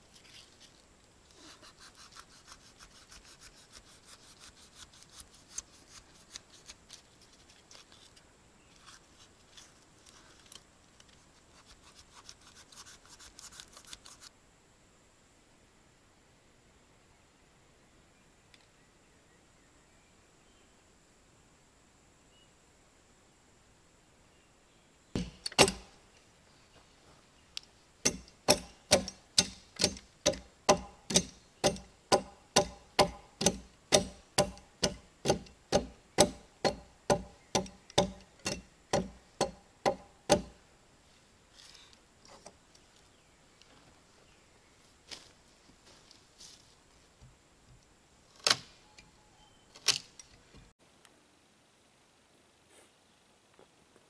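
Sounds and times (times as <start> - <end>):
sharp ringing knocks: 25.2 - 25.9, 28.0 - 40.6.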